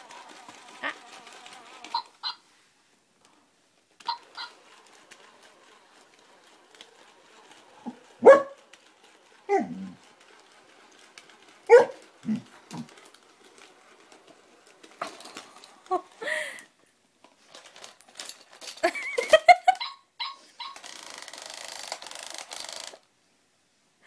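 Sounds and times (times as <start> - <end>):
bark-like yips: 8.2 - 8.6.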